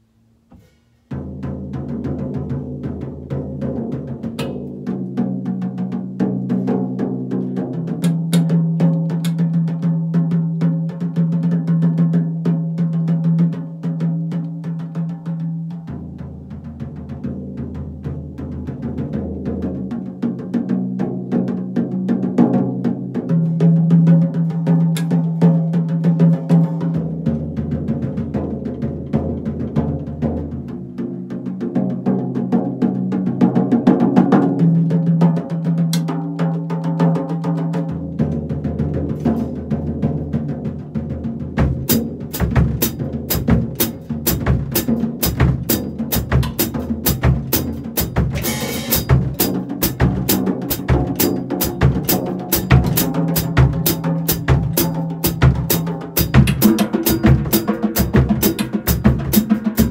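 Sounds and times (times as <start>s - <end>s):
tom drums ringing: 41.7s - 59.9s
cymbal strikes: 48.4s - 49.5s.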